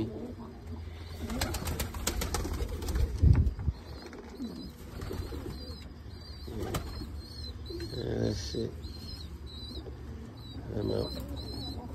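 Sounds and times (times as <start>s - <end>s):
pigeons cooing: 0.0s - 11.9s
wings flapping: 1.2s - 5.6s, 6.6s - 7.1s.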